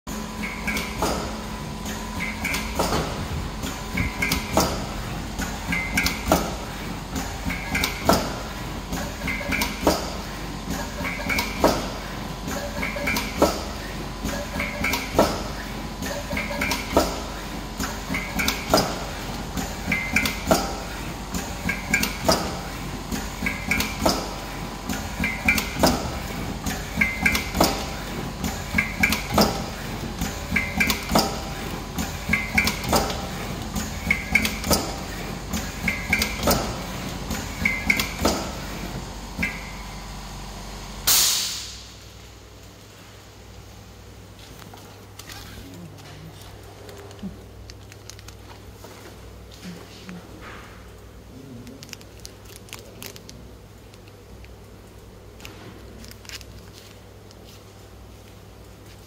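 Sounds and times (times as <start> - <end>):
motor hum: 0.1 - 41.1.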